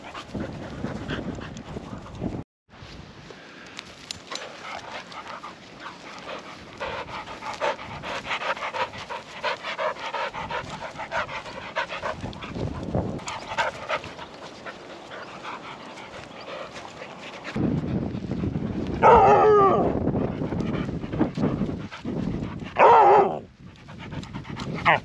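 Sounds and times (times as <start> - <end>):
dog panting: 0.0 - 2.4, 4.3 - 18.7, 20.0 - 22.8, 23.5 - 25.0.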